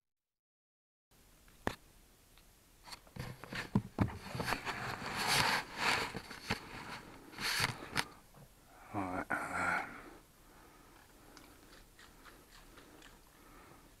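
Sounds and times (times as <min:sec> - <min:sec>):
fabric brushing microphone: 0:03.2 - 0:08.0.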